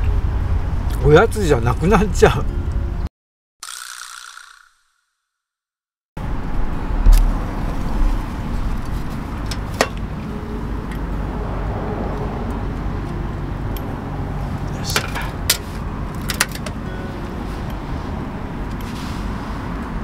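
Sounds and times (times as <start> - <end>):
low rumble: 6.2 - 9.4.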